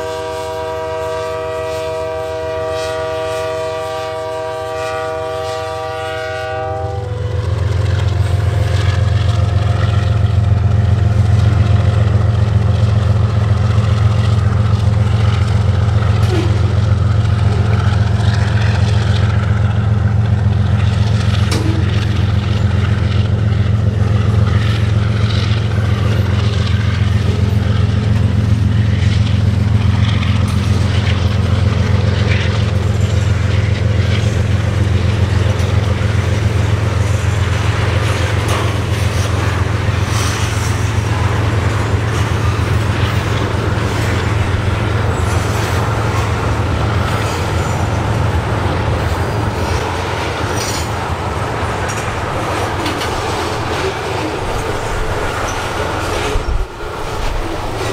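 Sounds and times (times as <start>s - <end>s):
locomotive air horn chord: 0.0s - 9.8s, 16.1s - 16.9s
locomotive engines rumbling: 0.0s - 57.9s.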